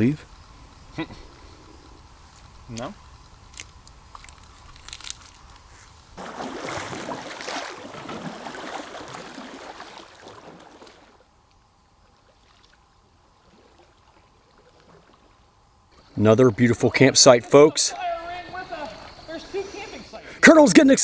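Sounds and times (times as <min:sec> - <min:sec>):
kayak paddle splashing water: 0:06.2 - 0:11.3, 0:12.0 - 0:15.7.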